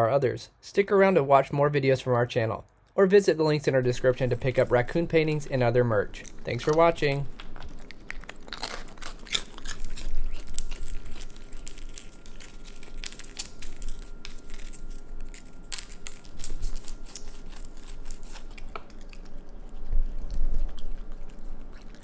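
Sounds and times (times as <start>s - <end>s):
animal crunching crackers: 3.8s - 22.0s.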